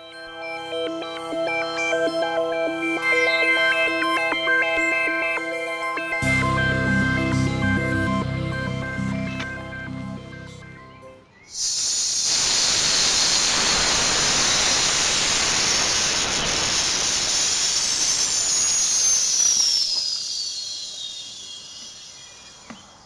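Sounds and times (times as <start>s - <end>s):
pressurized gas hissing: 11.5s - 22.2s
thin whistle falling in pitch: 17.8s - 22.6s.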